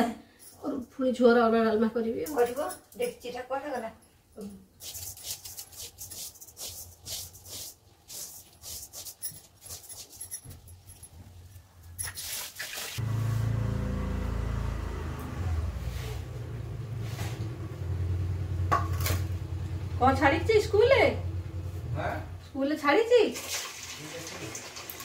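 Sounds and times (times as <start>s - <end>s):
glass bangles clinking: 2.2s - 4.5s, 9.0s - 12.3s.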